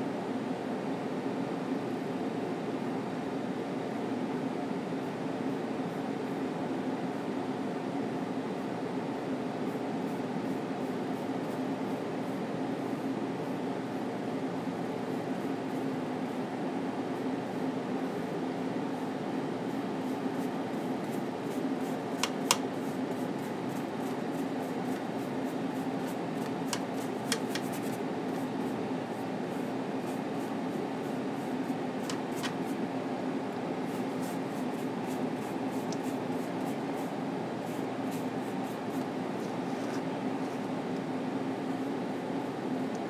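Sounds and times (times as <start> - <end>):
low constant hum: 0.0 - 43.0.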